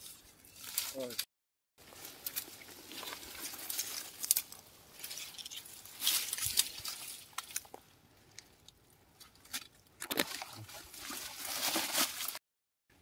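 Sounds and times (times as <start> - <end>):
dry leaves rustling and crackling: 0.0 - 1.2, 1.8 - 7.8, 10.7 - 12.4.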